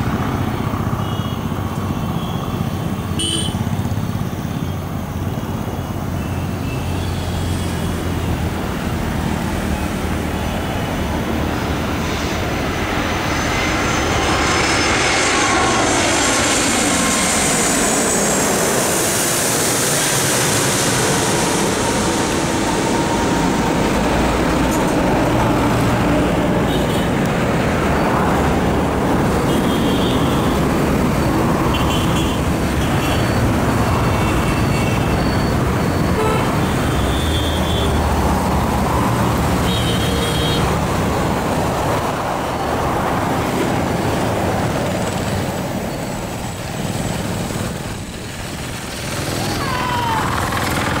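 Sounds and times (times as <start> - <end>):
distant jet engines roaring: 0.0 - 51.0
road traffic noise: 0.0 - 51.0
vehicle horn toots: 1.0 - 1.5, 3.2 - 3.7, 29.5 - 30.6, 31.7 - 33.4, 34.0 - 35.2, 36.0 - 38.0, 39.6 - 40.7.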